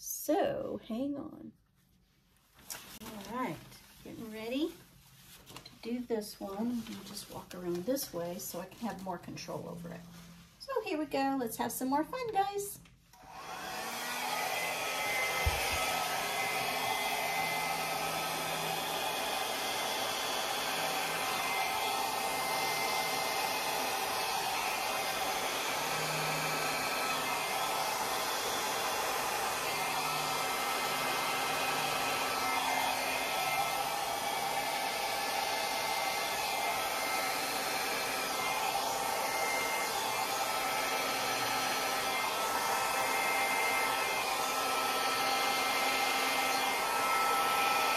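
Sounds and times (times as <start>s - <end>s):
hair dryer running: 13.1s - 47.9s.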